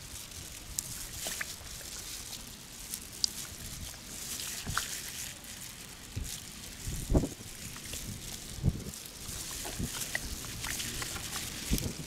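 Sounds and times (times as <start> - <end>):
plastic gloves crinkling: 0.0 - 12.0.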